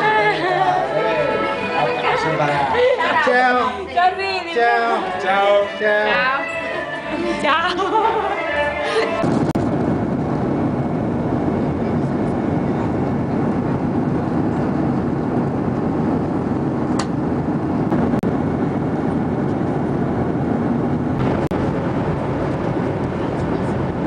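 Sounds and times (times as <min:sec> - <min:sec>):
airliner cabin engine rush: 0:07.0 - 0:24.0.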